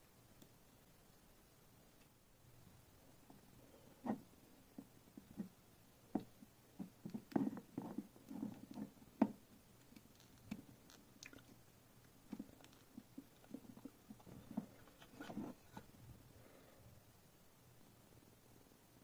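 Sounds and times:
soft clicks and rustles: 0:03.2 - 0:16.2.

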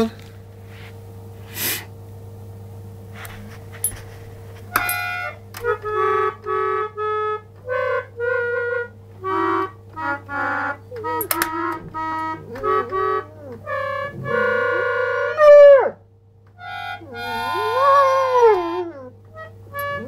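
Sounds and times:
low steady hum: 0:00.0 - 0:20.0
toy organ chords: 0:04.6 - 0:15.6, 0:16.5 - 0:20.0.

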